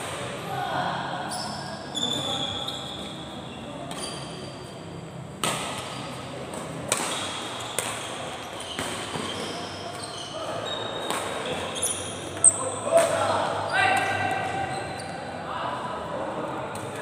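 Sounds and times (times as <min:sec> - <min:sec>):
shoes squeaking on court floor: 0:01.2 - 0:15.4
rackets hitting shuttlecock: 0:05.3 - 0:09.5, 0:11.0 - 0:11.7.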